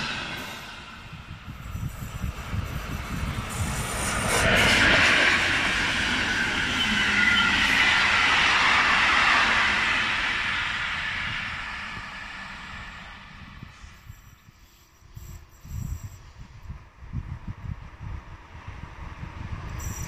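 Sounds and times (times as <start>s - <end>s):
train wheels on rails: 0.0s - 14.3s
thin high tone: 0.0s - 14.7s.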